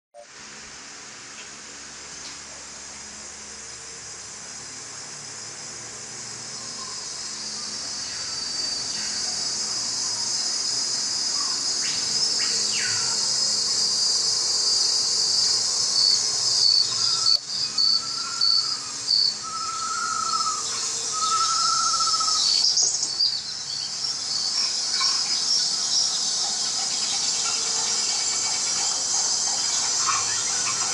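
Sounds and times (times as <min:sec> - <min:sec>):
high-pitched insect chorus: 0:00.5 - 0:30.9
rising and falling calls: 0:16.6 - 0:30.9.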